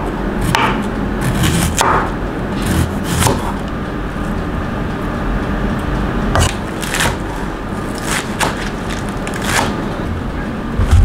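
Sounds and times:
cleaver chopping on wooden board: 0:00.5 - 0:02.1
low background rumble: 0:10.2 - 0:11.0.

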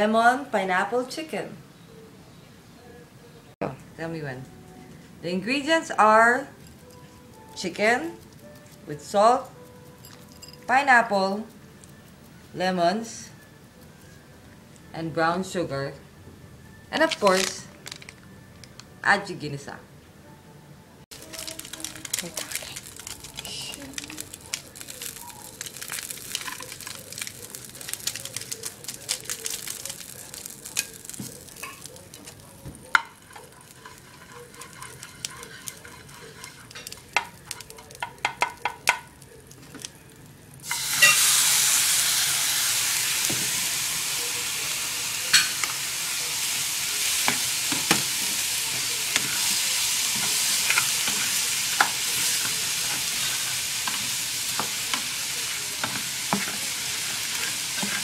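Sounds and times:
fruit sizzling in hot pan: 0:21.1 - 0:58.0
spatula scraping pan: 0:33.0 - 0:37.9, 0:47.2 - 0:58.0
spatula clinking in frying pan: 0:33.0 - 0:39.1.

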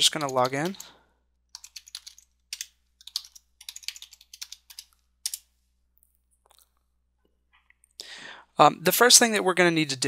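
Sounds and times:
typing on computer keyboard: 0:00.0 - 0:00.9, 0:01.5 - 0:05.5.

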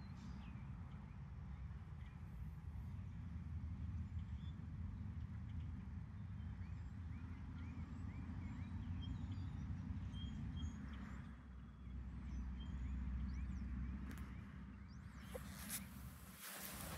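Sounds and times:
birds chirping: 0:12.3 - 0:16.9.

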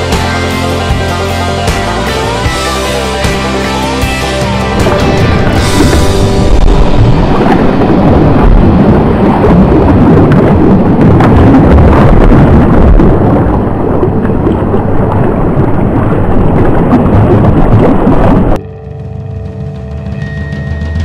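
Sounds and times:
wind buffeting microphone: 0:04.8 - 0:18.6.

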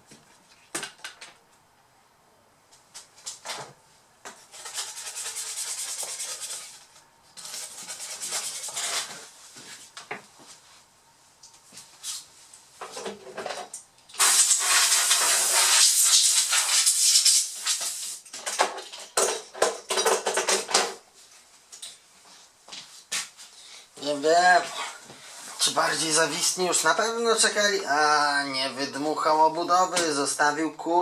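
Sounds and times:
rough scraping on plastic: 0:04.4 - 0:09.3.

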